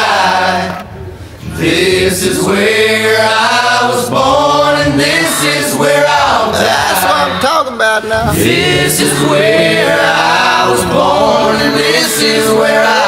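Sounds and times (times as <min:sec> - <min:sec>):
country song with sung vocals: 0:08.2 - 0:13.0.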